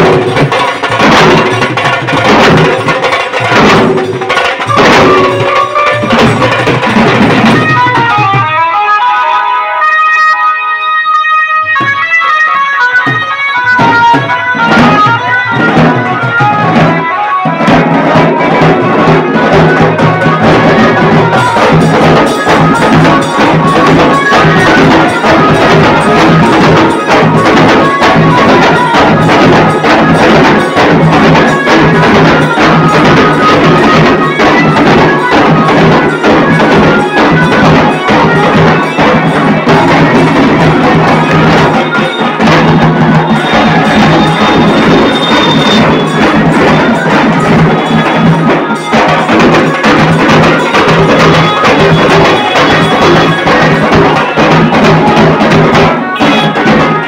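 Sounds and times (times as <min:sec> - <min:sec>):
loud drumming: 0:00.0 - 0:09.0, 0:11.6 - 0:57.0
tune: 0:04.7 - 0:19.2.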